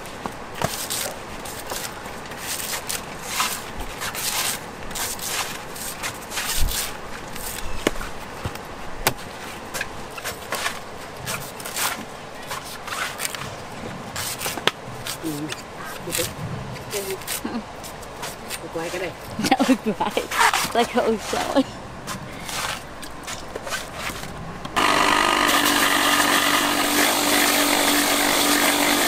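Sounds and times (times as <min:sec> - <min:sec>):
knife scraping coconut husk: 0:00.6 - 0:07.8, 0:10.2 - 0:13.4, 0:17.0 - 0:21.6, 0:22.4 - 0:29.0.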